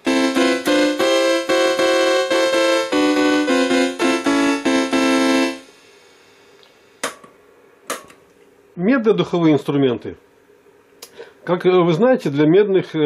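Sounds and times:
harpsichord keyboard chords: 0:00.0 - 0:05.7.

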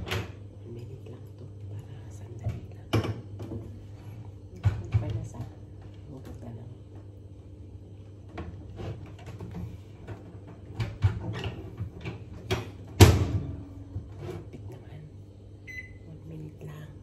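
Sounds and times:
low steady hum: 0:00.0 - 0:17.0
microwave door banging shut: 0:12.5 - 0:13.6.

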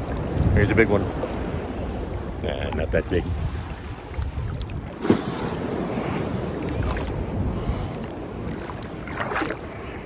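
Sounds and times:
ocean surf sloshing: 0:00.0 - 0:10.0
wind rumbling on microphone: 0:00.0 - 0:10.0
sharp water splash: 0:04.1 - 0:05.6, 0:06.6 - 0:07.2, 0:08.5 - 0:09.7.

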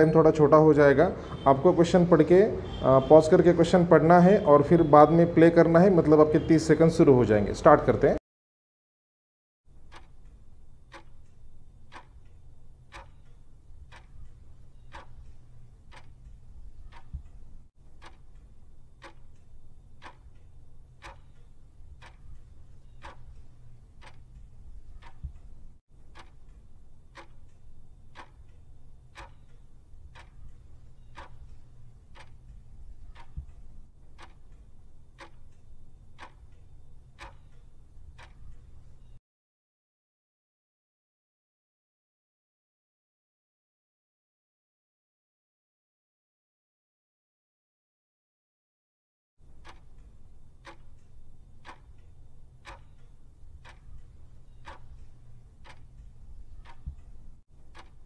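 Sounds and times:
clock ticking: 0:09.7 - 0:39.2, 0:49.4 - 0:58.0.

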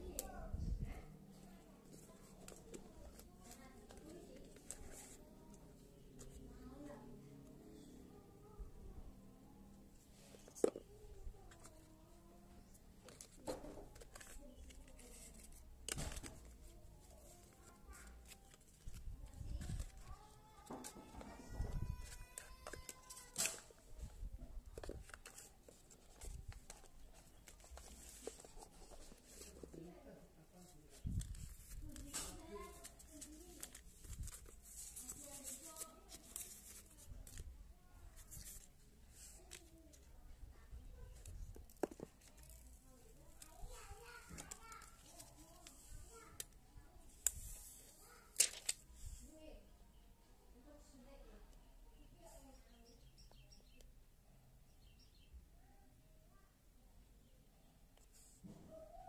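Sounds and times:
paper and cardboard rustling: 0:01.8 - 0:06.5, 0:12.6 - 0:30.0, 0:30.6 - 0:40.1, 0:41.0 - 0:46.5, 0:47.2 - 0:49.3.

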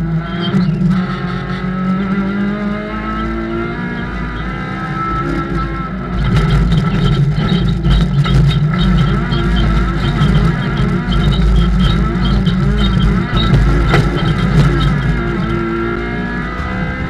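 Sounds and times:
race car engine revving: 0:00.0 - 0:17.0
loose surface crackling under car: 0:05.1 - 0:16.8.

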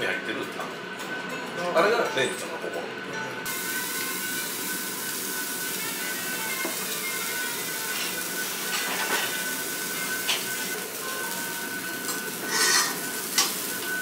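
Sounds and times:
meat sizzling on a grill: 0:03.5 - 0:14.0.

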